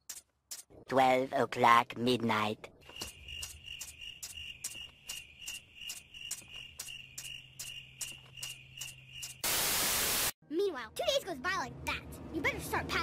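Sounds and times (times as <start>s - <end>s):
crickets chirping: 2.8s - 9.8s.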